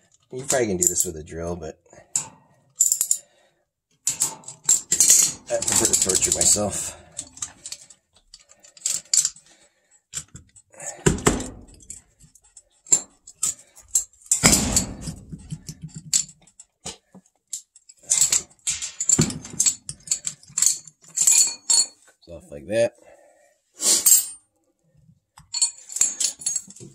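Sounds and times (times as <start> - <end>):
wrench clinking on metal: 2.0 - 3.3, 4.0 - 9.5, 10.1 - 22.0, 25.4 - 26.9.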